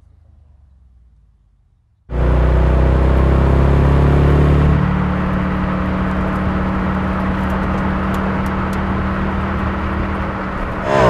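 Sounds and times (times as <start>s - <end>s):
car engine at steady revs: 0.0s - 11.0s
tyre and road noise: 4.9s - 11.0s.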